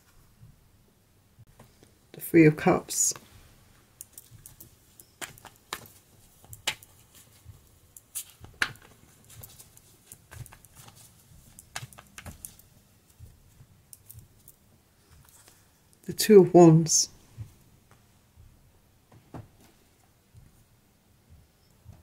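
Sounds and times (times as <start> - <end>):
playing cards being shuffled: 4.0 - 15.6.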